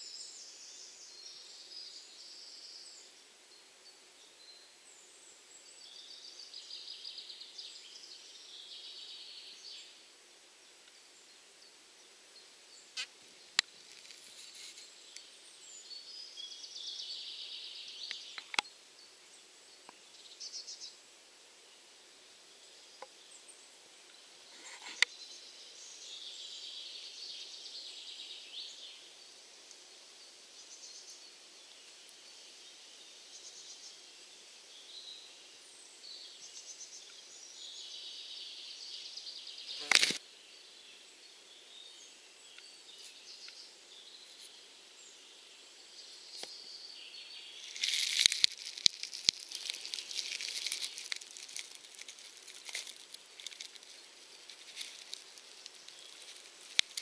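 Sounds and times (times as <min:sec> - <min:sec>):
crackling and scratching of soil: 0:12.9 - 0:16.2, 0:17.9 - 0:18.7, 0:24.1 - 0:25.4, 0:39.6 - 0:40.2, 0:42.5 - 0:44.6, 0:46.2 - 0:57.0.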